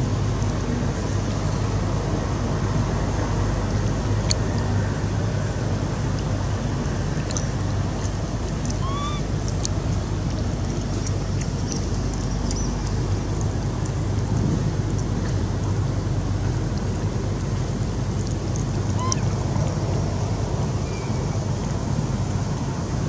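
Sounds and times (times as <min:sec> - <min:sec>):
short rising squeak: 0:08.7 - 0:09.3, 0:19.0 - 0:19.3.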